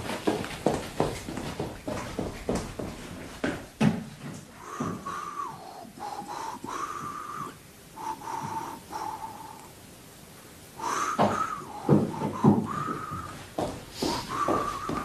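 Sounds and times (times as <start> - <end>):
footsteps: 0.0 - 7.4, 8.0 - 9.3, 10.8 - 15.0
person whistling: 10.8 - 13.4, 14.0 - 15.0.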